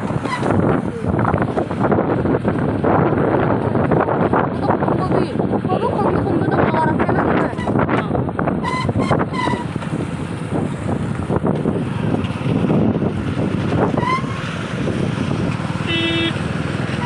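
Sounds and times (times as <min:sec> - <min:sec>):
tyre noise on wet road: 0:00.0 - 0:05.7, 0:07.5 - 0:17.0
motorcycle engine: 0:00.0 - 0:17.0
wind buffeting microphone: 0:00.0 - 0:17.0
short horn beep: 0:15.8 - 0:16.4.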